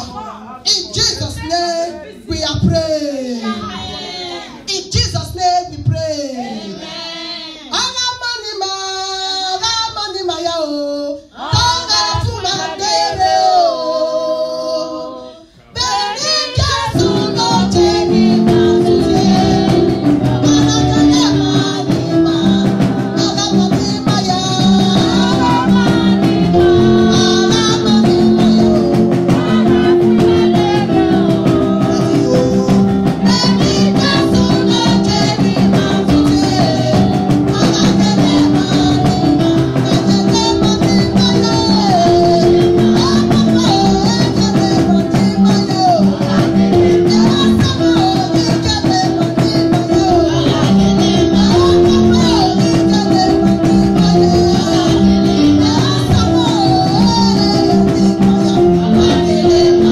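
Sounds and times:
woman singing into microphone: 7.1 - 59.9
backing music with steady beat: 15.9 - 59.9.

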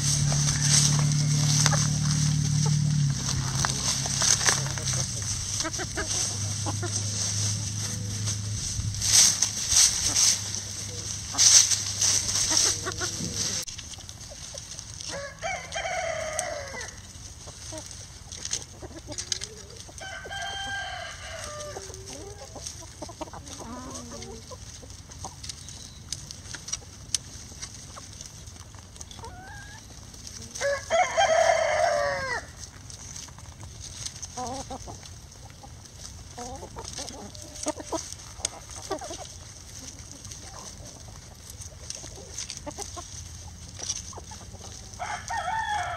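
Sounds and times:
chickens clucking: 0.0 - 45.9
rooster crowing: 0.3 - 1.9, 15.1 - 17.0, 20.0 - 22.5, 30.6 - 32.5, 44.9 - 45.9.

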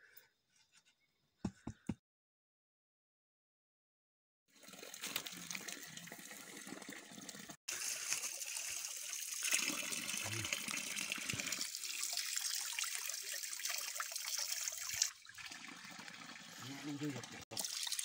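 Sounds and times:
water pouring and splashing on rock: 4.6 - 18.0.

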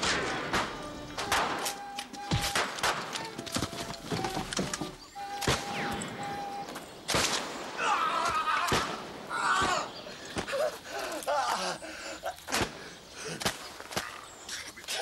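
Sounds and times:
sharp cracks: 0.0 - 3.6, 7.1 - 9.0.

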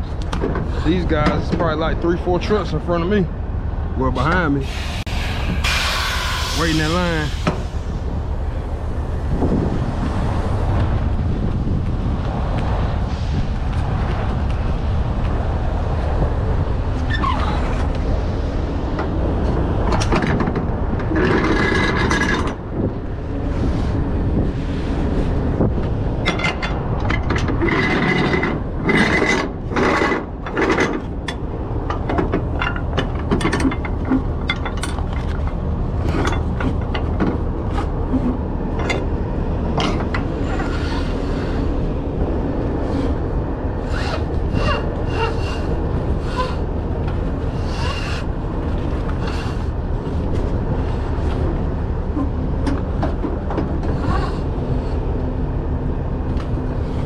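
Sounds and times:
steady low rumble: 0.0 - 57.0
strap rubbing and scraping on metal: 18.6 - 22.7, 23.5 - 39.2, 42.8 - 55.2
metal hardware clicking and rattling: 26.2 - 37.4.

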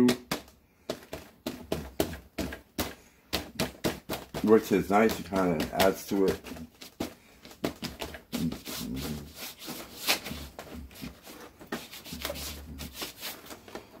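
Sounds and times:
paper towel scratching on paper: 4.3 - 13.8.

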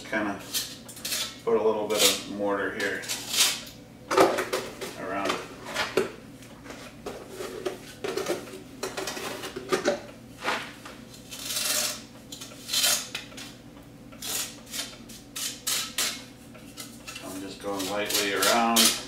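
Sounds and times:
metal trowel scraping metal pipe: 14.2 - 19.0.

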